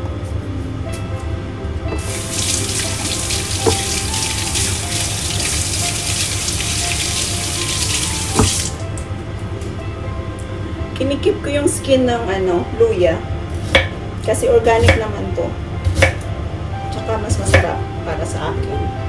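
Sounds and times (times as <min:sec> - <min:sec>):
tap running into sink: 0:01.9 - 0:09.1
knocks against sink: 0:03.6 - 0:03.9, 0:08.3 - 0:08.7, 0:15.9 - 0:16.2.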